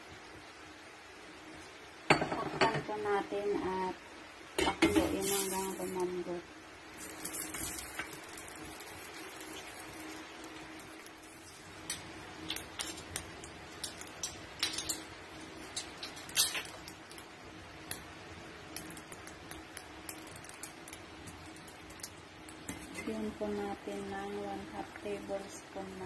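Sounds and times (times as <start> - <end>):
steady hum: 0.0 - 26.0
cooking pot clicks and ticks: 11.8 - 15.0, 18.7 - 23.1.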